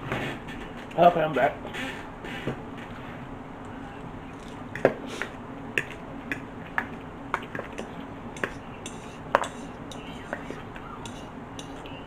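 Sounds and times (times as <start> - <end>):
forks clicking on bowls: 6.8 - 12.0.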